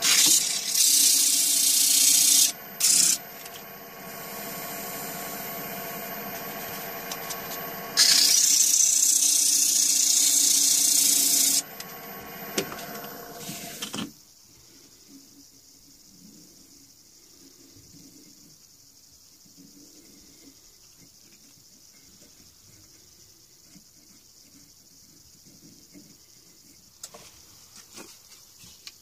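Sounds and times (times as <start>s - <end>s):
sandpaper rasping on spinning wood: 0.0s - 11.6s
lathe motor hum: 0.0s - 14.0s.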